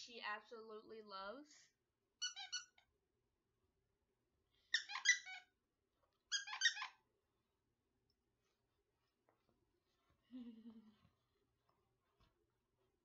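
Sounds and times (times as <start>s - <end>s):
dog toy squeaking: 2.2s - 2.9s, 4.7s - 5.5s, 6.3s - 7.0s.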